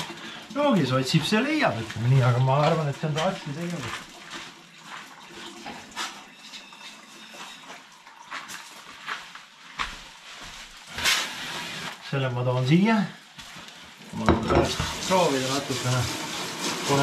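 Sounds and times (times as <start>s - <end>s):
plate clattering: 14.2s - 15.0s.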